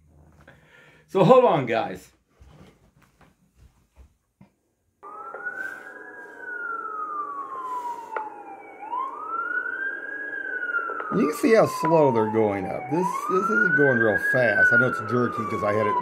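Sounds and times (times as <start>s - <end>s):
fire truck siren wailing: 5.0s - 16.0s.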